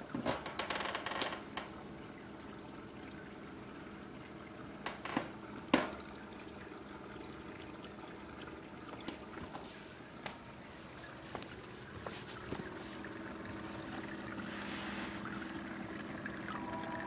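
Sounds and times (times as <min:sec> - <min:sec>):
faint pump hum: 0:00.0 - 0:17.0
water trickling: 0:00.0 - 0:17.0
cat lapping water: 0:10.7 - 0:17.0.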